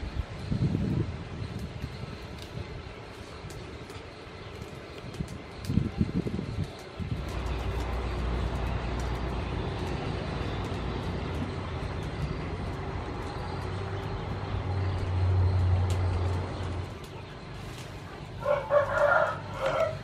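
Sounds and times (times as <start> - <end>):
passing vehicle engine rumble: 5.1 - 20.0.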